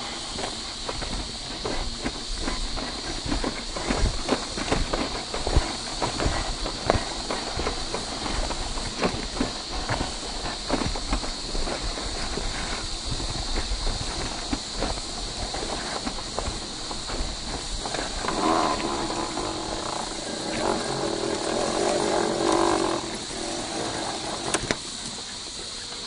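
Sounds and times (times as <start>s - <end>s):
electric motor whining: 16.4s - 24.8s.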